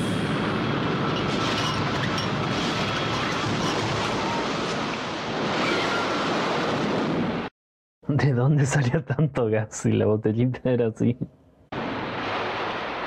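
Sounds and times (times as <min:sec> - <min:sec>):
loud steady rushing noise: 0:00.0 - 0:05.3.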